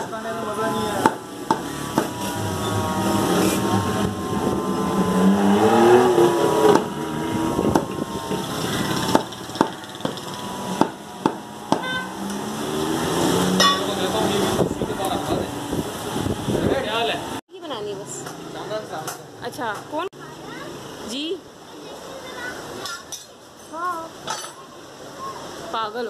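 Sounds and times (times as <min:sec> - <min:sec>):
voices talking: 0:00.0 - 0:10.8
market noise: 0:00.0 - 0:26.0
cleaver chopping meat on wood: 0:01.0 - 0:02.1, 0:10.8 - 0:11.9.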